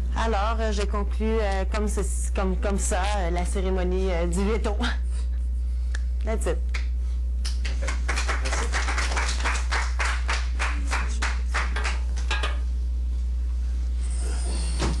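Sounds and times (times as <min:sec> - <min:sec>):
steady low hum: 0:00.0 - 0:15.0
group clapping: 0:06.7 - 0:12.4.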